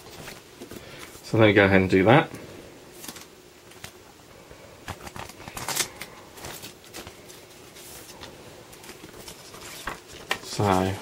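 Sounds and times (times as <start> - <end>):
photo paper pack rustling: 2.9 - 4.0, 4.9 - 11.0.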